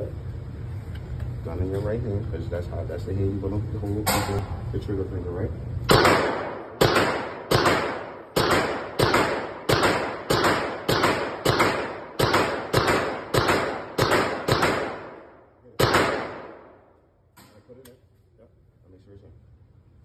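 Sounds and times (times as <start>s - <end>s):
pistol shots ringing: 5.9s - 16.8s.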